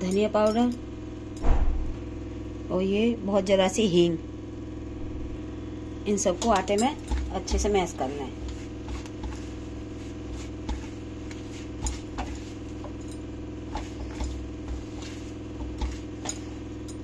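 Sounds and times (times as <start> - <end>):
bangles clinking on bowl: 0.0 - 0.8
steady low hum: 0.0 - 17.0
hand mixing flour in steel bowl: 6.1 - 17.0.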